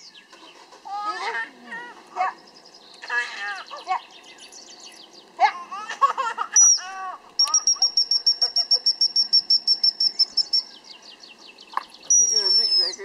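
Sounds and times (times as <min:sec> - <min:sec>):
faint bird chirps: 0:06.5 - 0:13.0
dog whistle pips: 0:07.4 - 0:10.6.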